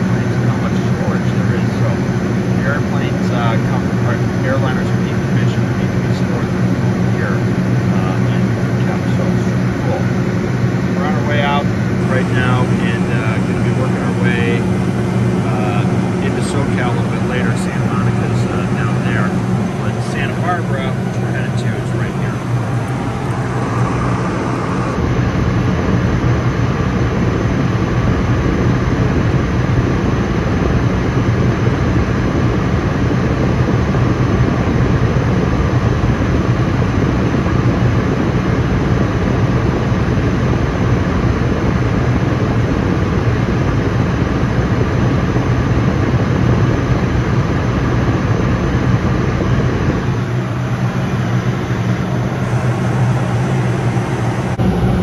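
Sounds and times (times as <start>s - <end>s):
low jet engine hum: 0.0s - 55.0s
rush of air over airframe: 8.4s - 27.8s, 48.8s - 55.0s.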